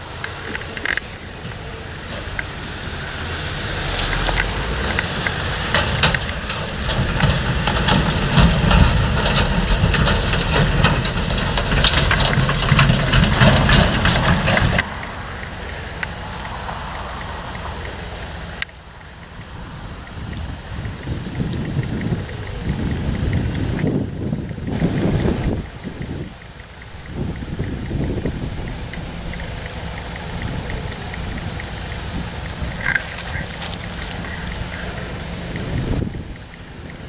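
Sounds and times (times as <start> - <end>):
diesel lorry engine rumble: 0.0 - 37.0
trailer clattering and rattling: 0.0 - 37.0.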